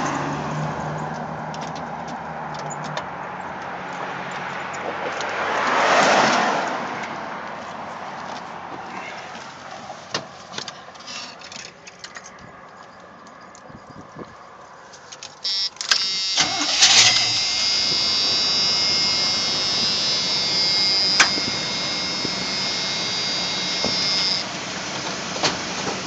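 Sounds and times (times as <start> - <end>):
engine cranking: 15.4 - 26.0
pickup engine running: 15.4 - 26.0
steady high whine: 15.4 - 26.0.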